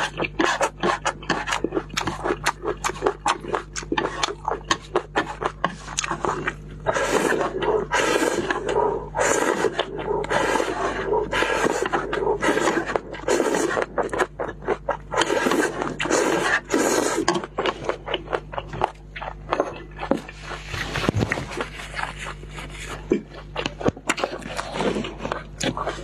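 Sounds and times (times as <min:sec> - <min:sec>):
wet chewing and lip smacking: 0:00.0 - 0:26.0
loud slurping: 0:05.1 - 0:18.0.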